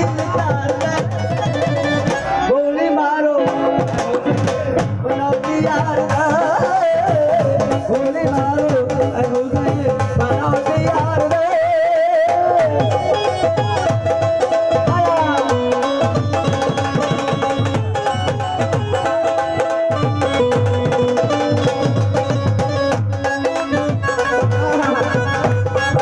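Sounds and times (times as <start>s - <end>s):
hand drum beat: 0.0s - 2.5s, 3.4s - 26.0s
man singing ornamented melody: 0.0s - 13.6s.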